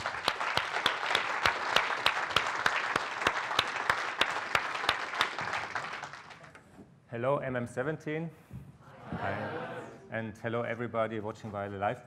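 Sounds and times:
audience applauding: 0:00.0 - 0:06.6
loud claps close to microphone: 0:00.0 - 0:06.7.

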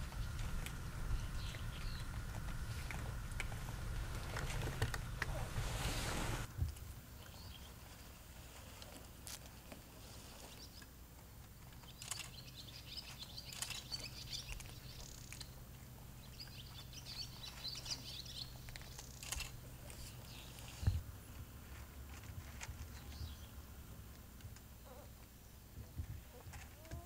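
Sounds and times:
small birds twittering: 0:00.0 - 0:06.5, 0:07.2 - 0:07.8, 0:11.7 - 0:21.0, 0:22.7 - 0:23.7
steady low hum: 0:00.0 - 0:27.0.

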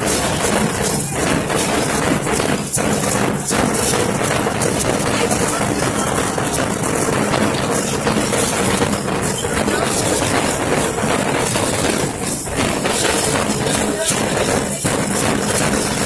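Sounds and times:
crowd talking: 0:00.0 - 0:16.0.

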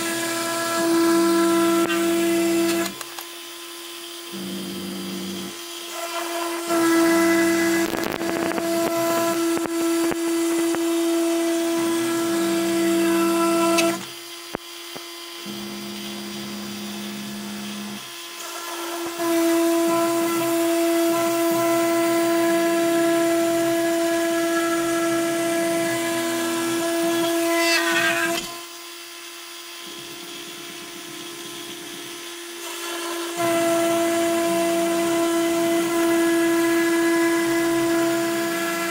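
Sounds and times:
router spindle whine: 0:00.0 - 0:38.9
stepper motor tone: 0:04.3 - 0:05.6, 0:15.4 - 0:18.0.

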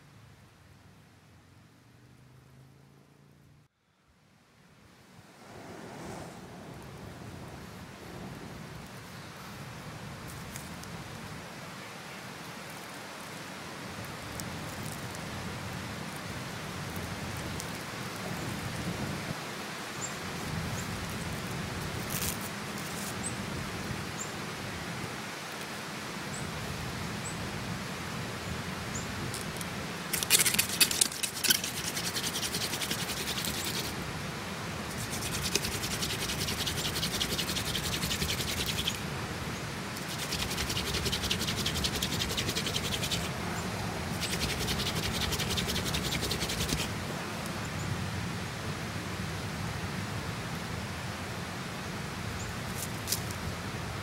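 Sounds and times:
tinder crackling and popping: 0:16.8 - 0:18.7, 0:29.3 - 0:34.0
hand drill rubbing on wood: 0:30.1 - 0:34.0, 0:34.9 - 0:39.0, 0:40.0 - 0:43.3, 0:44.1 - 0:46.9.

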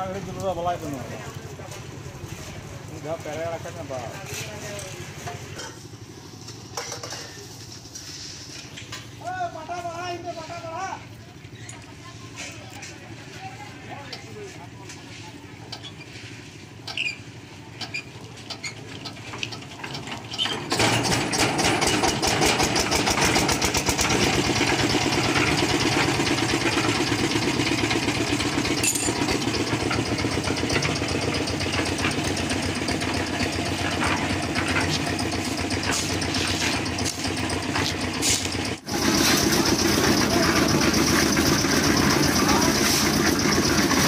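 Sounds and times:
concrete mixer engine knocking: 0:18.5 - 0:44.0.

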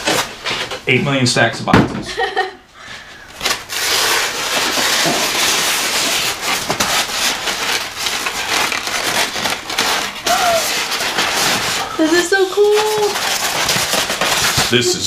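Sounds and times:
cardboard scraping on cardboard: 0:03.4 - 0:15.0.

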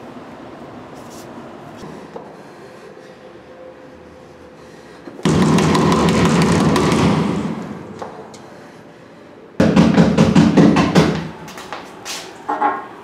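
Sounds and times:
hand banging on wooden door: 0:09.6 - 0:11.3.

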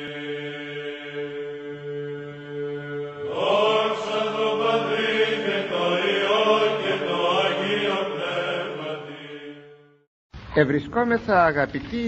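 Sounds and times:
voices singing a melody: 0:00.0 - 0:09.8.

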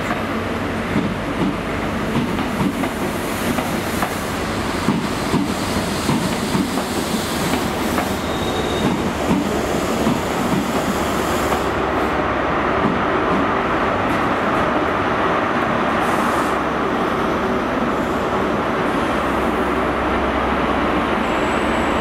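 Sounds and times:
train rumble: 0:00.0 - 0:22.0
train wheels clicking over rail joints: 0:04.8 - 0:11.8.

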